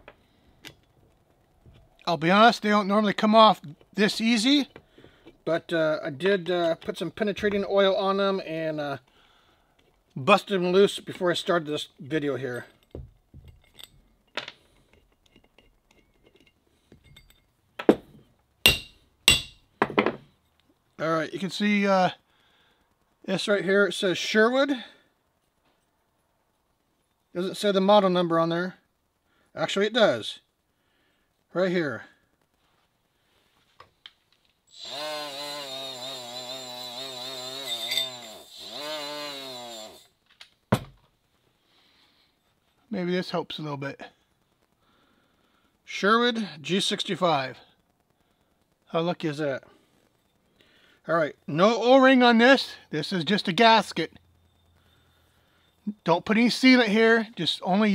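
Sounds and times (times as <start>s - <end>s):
electric power tool running: 34.7s - 40.1s
small metallic screw clicks: 37.6s - 38.7s.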